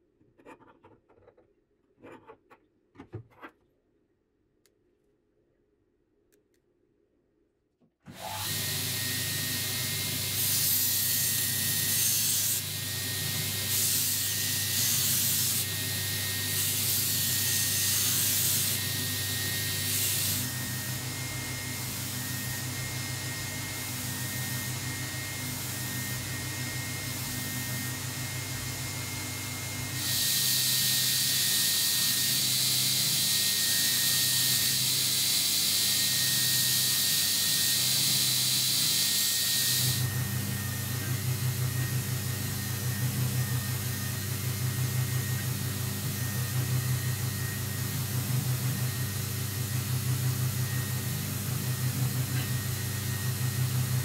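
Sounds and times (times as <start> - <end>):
belt grinder motor hum: 8.1 - 40.2.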